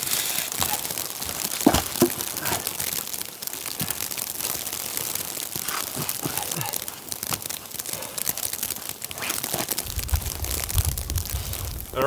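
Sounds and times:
crunching on wet ground: 0.0s - 12.0s
steady hiss: 0.0s - 12.0s.

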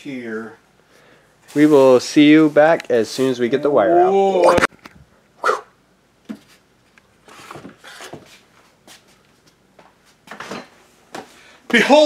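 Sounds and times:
scuffing and rustling: 7.3s - 11.8s.

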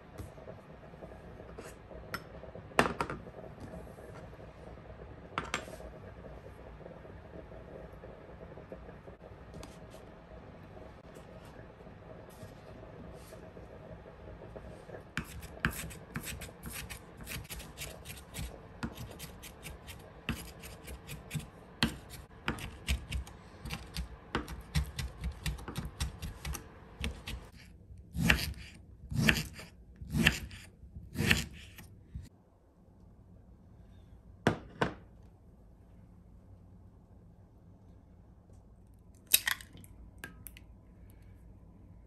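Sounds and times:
knife chopping on cutting board: 20.3s - 27.5s, 28.2s - 30.6s, 31.2s - 31.7s.

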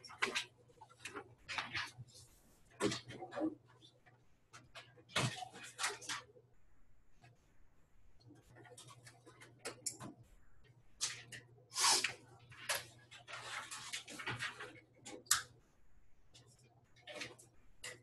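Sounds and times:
paper rustling on desk: 11.1s - 14.8s.

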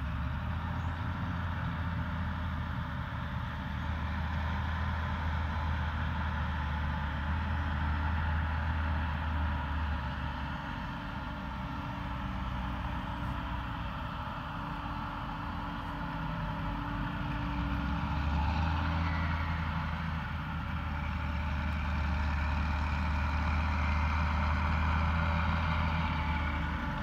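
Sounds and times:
low engine drone: 0.0s - 27.0s.

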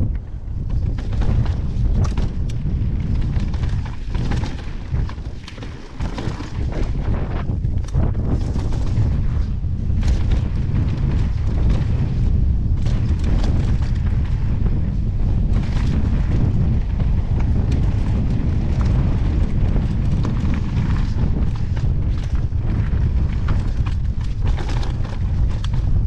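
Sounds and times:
bike and stones clattering: 0.0s - 26.0s
wind buffeting: 0.0s - 26.0s
tyres on gravel: 0.1s - 26.0s.

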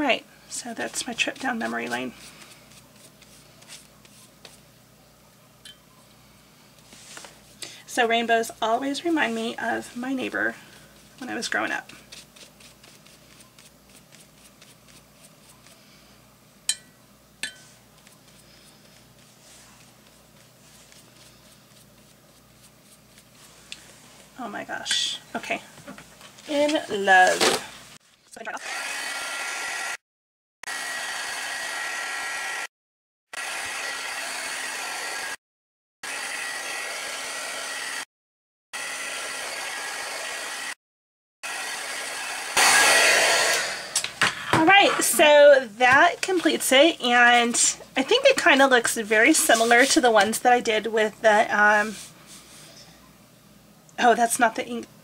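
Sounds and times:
heat tool fan hiss and whine: 0.0s - 28.0s, 38.8s - 40.8s, 41.5s - 55.0s
brush strokes on paper: 0.5s - 4.6s, 6.8s - 7.6s, 9.1s - 16.2s, 17.6s - 24.5s, 48.2s - 50.2s, 51.8s - 52.7s.

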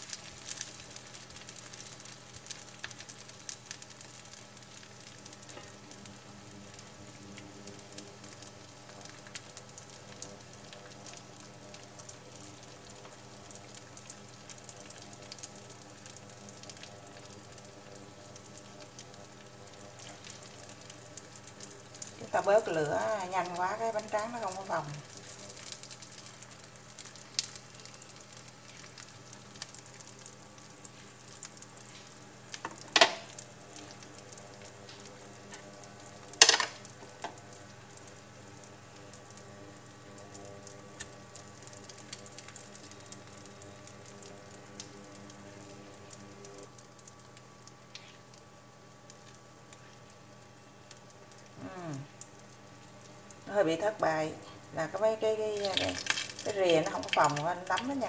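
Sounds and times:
food sizzling in oil: 0.0s - 58.0s.

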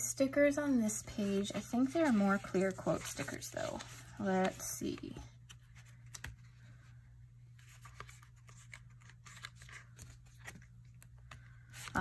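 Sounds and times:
paper pages rustling: 1.1s - 6.8s, 7.5s - 12.0s.

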